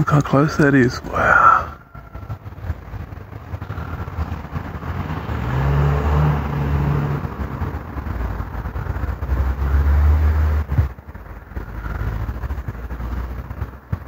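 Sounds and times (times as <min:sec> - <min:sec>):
flying saucer droning hum: 0:00.0 - 0:04.7.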